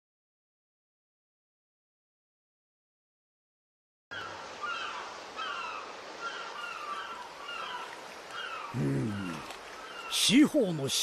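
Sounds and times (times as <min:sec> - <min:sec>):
seagulls crying: 0:04.1 - 0:10.9
steady background hiss: 0:04.1 - 0:11.0.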